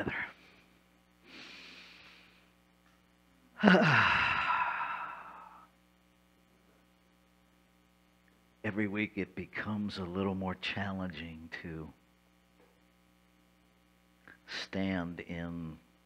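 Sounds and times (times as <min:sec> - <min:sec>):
soft inhale: 0:00.2 - 0:02.6
loud voiced sigh: 0:03.6 - 0:05.7.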